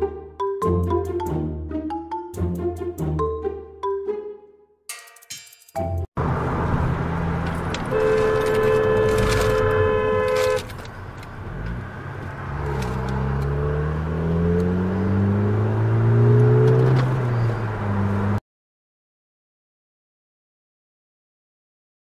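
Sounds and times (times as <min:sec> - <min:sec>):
road noise inside car: 0:06.2 - 0:18.4
two-tone car horn: 0:07.9 - 0:10.7
engine accelerating hard: 0:11.4 - 0:18.4.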